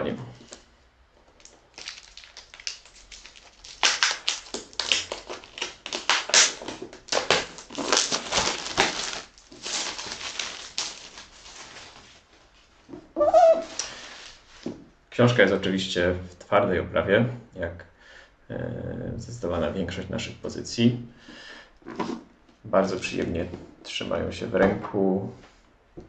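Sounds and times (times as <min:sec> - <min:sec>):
plastic shrink-wrap crackling: 0:01.3 - 0:12.7.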